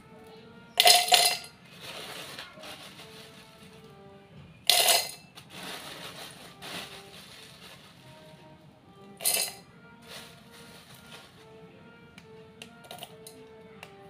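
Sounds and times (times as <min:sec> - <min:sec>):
pieces clattering in metal bowl: 0:00.8 - 0:03.5, 0:04.7 - 0:07.8, 0:09.2 - 0:11.3.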